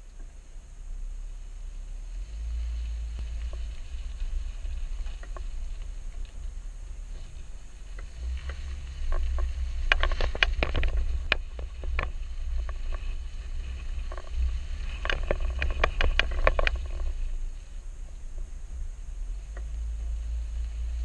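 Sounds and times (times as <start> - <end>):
tyres rolling over gravel: 0.0 - 21.0
wind and road rumble: 0.0 - 21.0
stones pinging under tyres: 1.6 - 21.0.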